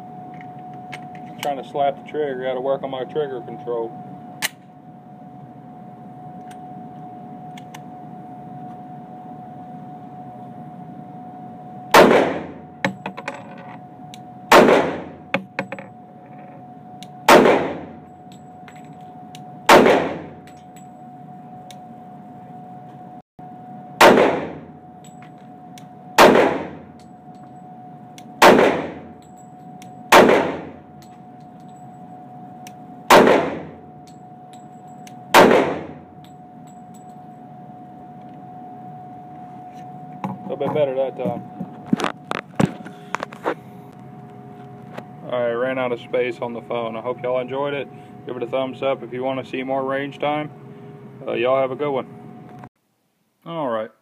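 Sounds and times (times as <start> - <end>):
pistol shots ringing indoors: 11.9 - 12.6, 14.5 - 15.2, 17.3 - 17.9, 19.7 - 20.6, 24.0 - 24.7, 26.2 - 26.8, 28.4 - 29.1, 30.1 - 30.8, 33.1 - 33.8, 35.3 - 36.0.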